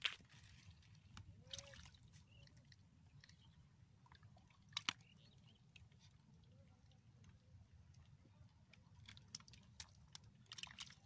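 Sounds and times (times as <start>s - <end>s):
wet squelching and splashing: 9.2s - 11.0s.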